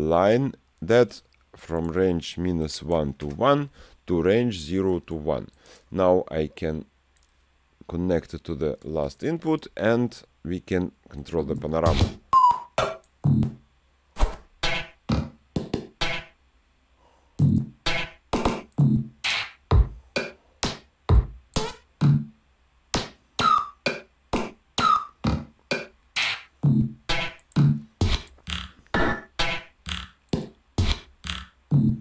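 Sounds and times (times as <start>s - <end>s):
drum machine and synth hits: 11.8s - 13.6s, 14.2s - 16.4s, 17.4s - 32.0s.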